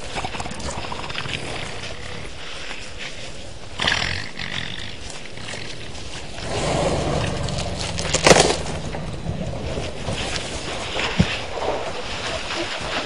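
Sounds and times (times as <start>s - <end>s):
elephant trumpeting: 4.9s - 11.0s.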